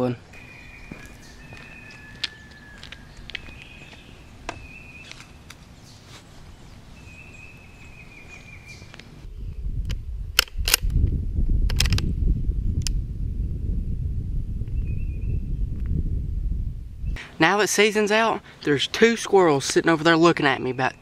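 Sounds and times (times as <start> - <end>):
faint high chirping calls: 0.4 - 9.0.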